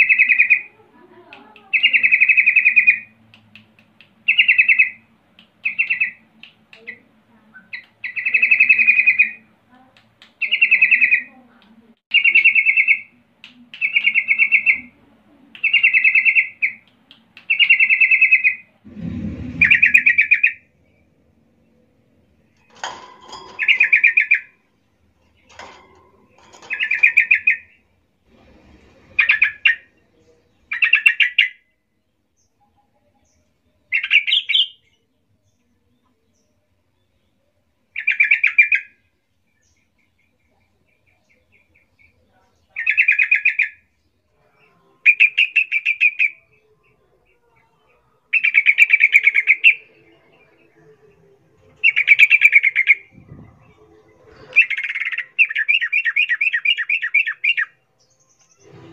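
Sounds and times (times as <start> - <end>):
low thump: 18.9 - 20.3.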